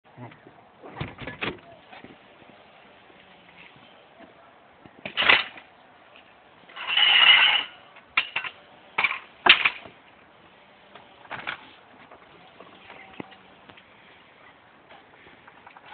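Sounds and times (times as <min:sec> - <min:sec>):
knocks and clicks handling bike: 0:04.2 - 0:10.0, 0:10.9 - 0:13.9, 0:14.9 - 0:15.9.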